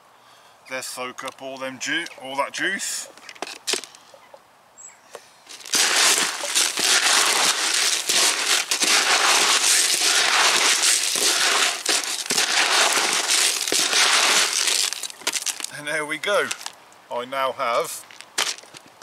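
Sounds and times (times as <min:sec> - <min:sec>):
pellets rattling in a bucket: 0:05.5 - 0:15.8.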